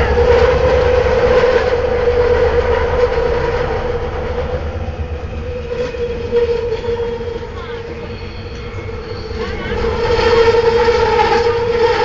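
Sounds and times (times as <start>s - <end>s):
train whine: 0.0s - 12.0s
wheels rumbling on rail: 0.0s - 12.0s.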